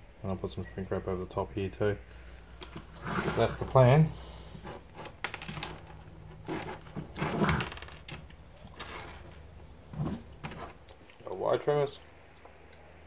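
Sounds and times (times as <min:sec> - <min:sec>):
wires and tools handled on wood: 0:02.6 - 0:03.9, 0:04.5 - 0:11.2.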